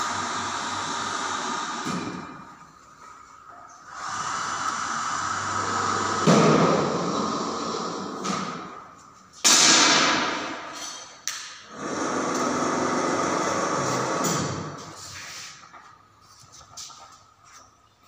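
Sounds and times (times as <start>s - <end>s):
air gun shots ringing: 9.4s - 11.6s.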